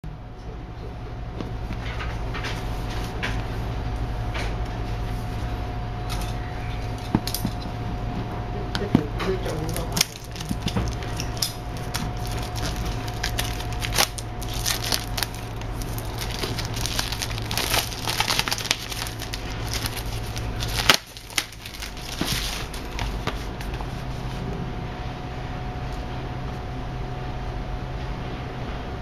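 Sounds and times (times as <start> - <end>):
plastic film crinkling: 9.4 - 24.1
scissors snipping plastic: 9.5 - 23.4.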